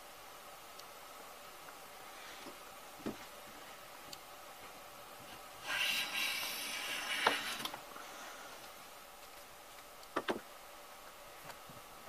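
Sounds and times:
hand plane blade hissing through wood: 0:05.6 - 0:08.4.

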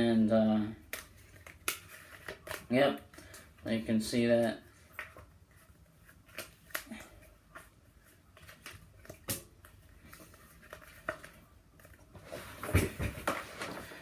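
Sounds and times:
playing cards clicking and snapping: 0:00.8 - 0:02.7, 0:06.3 - 0:07.0.

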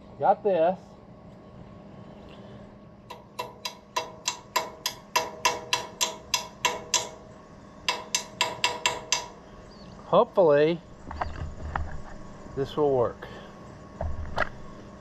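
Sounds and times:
hammer tapping on steel: 0:03.1 - 0:07.3, 0:07.9 - 0:09.4.

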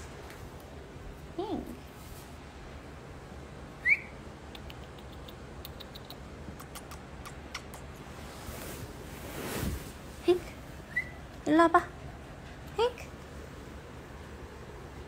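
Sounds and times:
woman whistling: 0:03.8 - 0:04.1
lip kissing smacks: 0:04.5 - 0:08.0.

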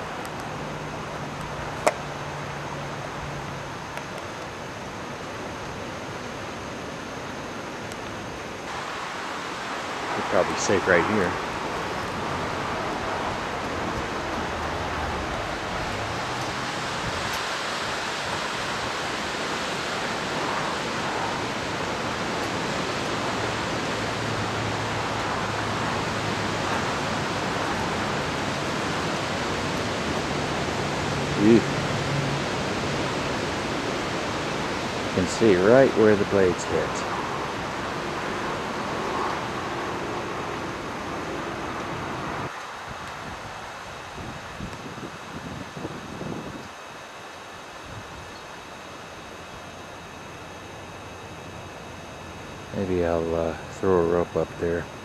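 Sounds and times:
low steady hum: 0:00.0 - 0:55.0
wind on microphone: 0:11.1 - 0:35.6, 0:36.6 - 0:46.8.

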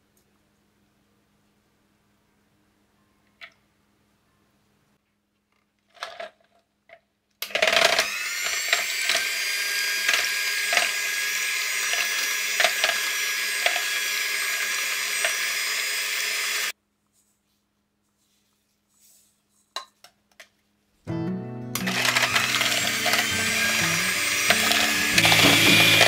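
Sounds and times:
electric hand mixer whining: 0:07.4 - 0:16.7, 0:21.8 - 0:26.0.

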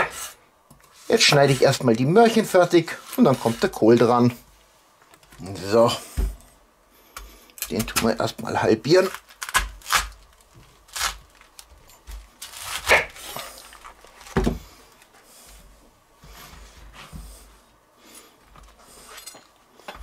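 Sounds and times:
scraping and handling: 0:00.0 - 0:04.4, 0:09.0 - 0:15.6
knife cracking through cabbage: 0:09.0 - 0:14.4.

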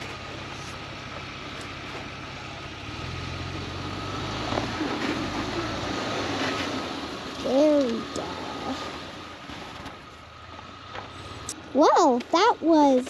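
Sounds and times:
vehicle engine straining in snow: 0:00.0 - 0:13.0.

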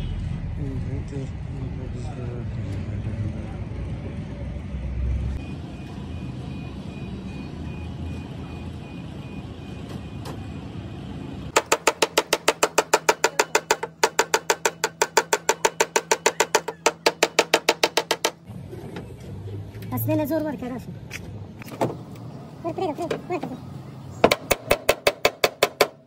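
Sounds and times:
hammer tapping on sheet metal: 0:11.5 - 0:18.4, 0:24.2 - 0:26.0.

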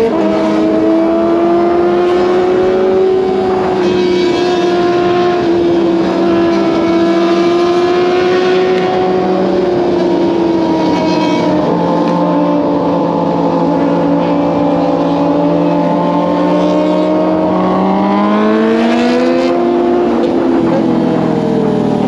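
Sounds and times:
motorcycle engine running: 0:08.6 - 0:22.0.

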